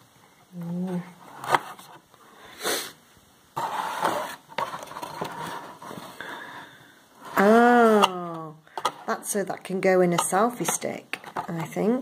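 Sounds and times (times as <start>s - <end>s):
short hiss: 2.5s - 3.0s.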